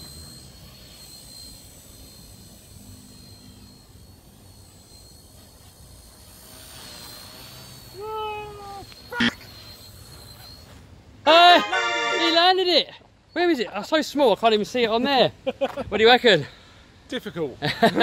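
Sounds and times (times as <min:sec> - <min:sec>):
rc helicopter motor whine: 0:00.0 - 0:11.1.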